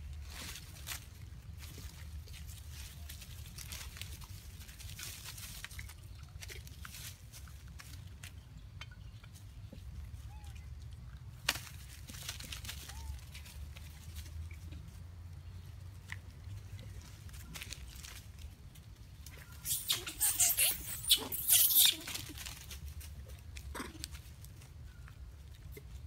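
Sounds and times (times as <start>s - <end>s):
dry leaves rustling and crunching: 0.0s - 8.5s, 11.4s - 26.0s.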